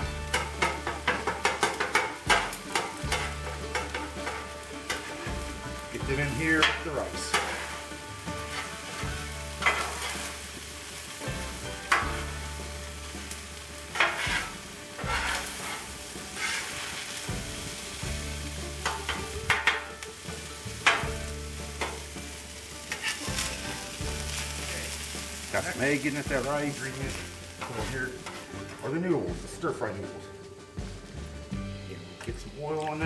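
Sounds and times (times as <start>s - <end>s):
metal spatulas scraping and clacking: 0.0s - 11.2s, 11.8s - 13.1s, 13.8s - 17.7s, 18.8s - 25.1s, 26.0s - 29.0s
fried rice sizzling on griddle: 0.0s - 29.1s.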